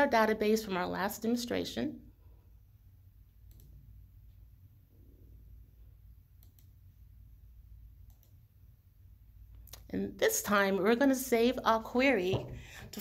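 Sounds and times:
computer mouse clicks: 3.4s - 3.8s, 6.4s - 6.8s, 8.0s - 8.4s.

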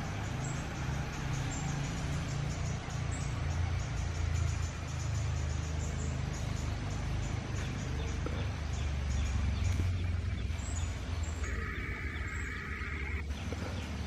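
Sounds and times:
buzzing call: 11.4s - 13.3s
faint animal calls: 11.4s - 13.3s.

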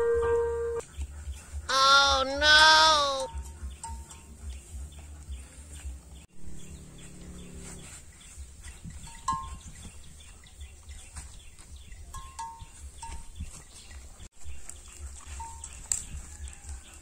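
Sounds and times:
bird chirps: 3.2s - 16.2s
faint clicks and rustles: 7.7s - 17.0s.

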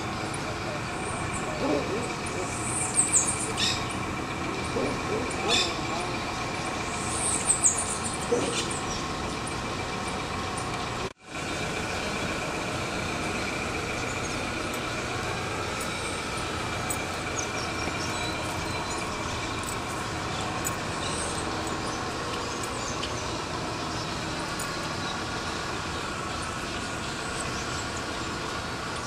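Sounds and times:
distant road traffic: 0.0s - 29.0s.

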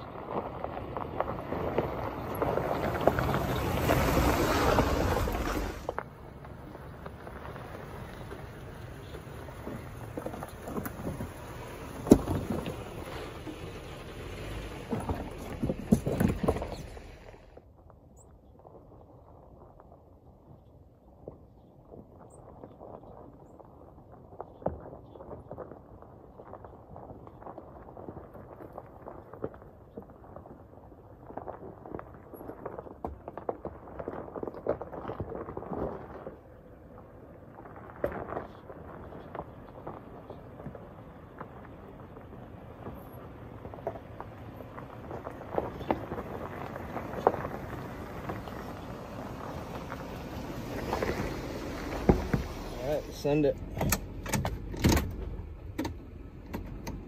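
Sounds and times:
low engine rumble: 0.0s - 17.6s, 35.4s - 57.0s
tyres crunching over rocks: 0.0s - 57.0s.

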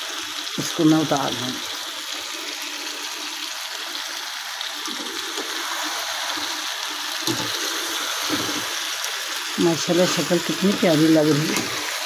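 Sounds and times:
vegetables sizzling in oil: 0.0s - 12.0s
wooden spatula stirring: 7.3s - 8.8s.

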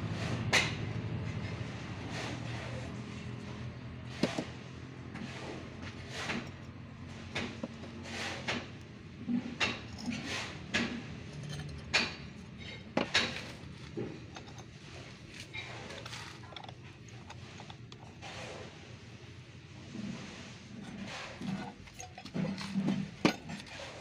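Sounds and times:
metal mould clicks and knocks: 6.3s - 14.8s.

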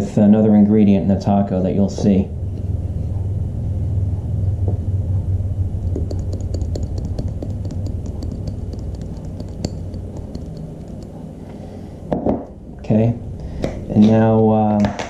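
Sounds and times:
steady low hum: 0.0s - 15.0s
spice jar shaking ticks: 5.9s - 11.2s.

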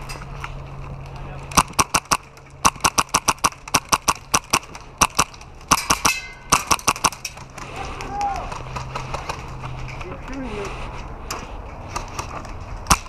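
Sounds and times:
airsoft gun rapid shots: 1.6s - 7.2s.

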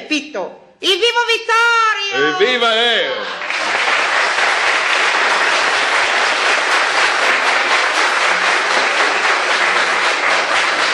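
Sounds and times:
audience applauding: 2.2s - 10.9s.

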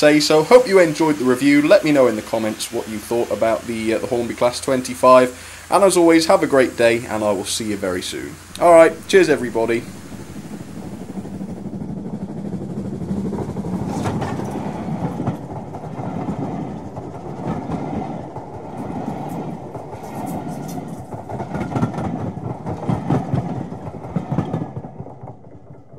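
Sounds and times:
model train rumbling: 0.0s - 25.9s
wheels clicking over rail joints: 0.0s - 25.9s.

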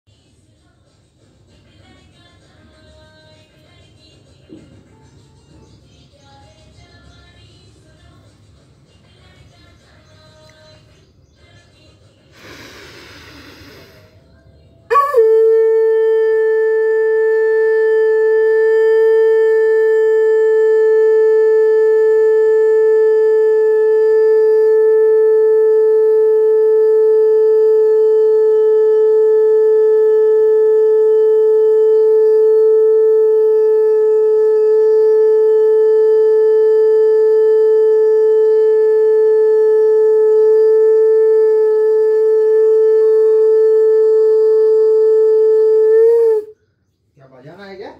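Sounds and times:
conch shell horn blown: 14.9s - 46.6s.

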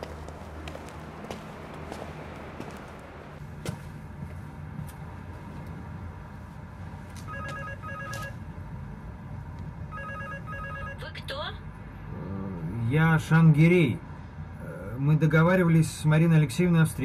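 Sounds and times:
electronic ringing tone: 7.3s - 8.4s, 9.9s - 11.1s.

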